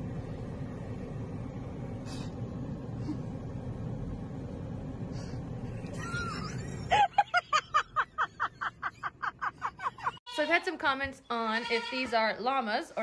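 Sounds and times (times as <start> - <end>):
road and engine rumble in car: 0.0 - 10.2.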